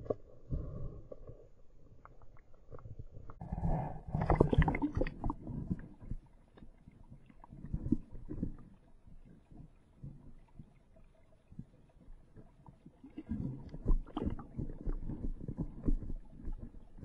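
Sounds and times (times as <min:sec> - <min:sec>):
muffled water swirling underwater: 0:00.0 - 0:17.0
low knocks underwater: 0:13.2 - 0:17.0.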